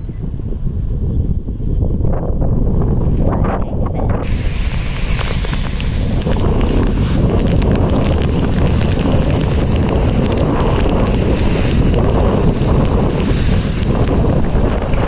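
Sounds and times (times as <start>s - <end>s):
wind blasting microphone: 0.0s - 15.0s
heavy rain downpour: 4.2s - 15.0s.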